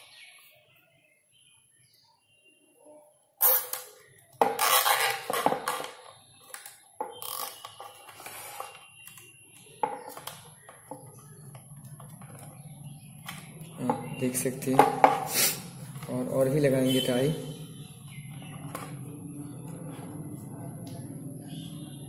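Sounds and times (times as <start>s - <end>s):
knocks and clatter on plastic: 9.7s - 15.3s.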